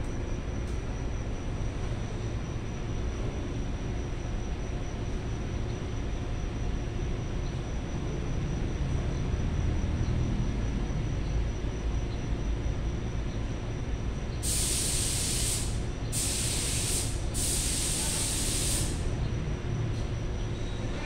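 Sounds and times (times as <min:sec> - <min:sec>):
hissing spray from nozzle: 0:14.4 - 0:19.1.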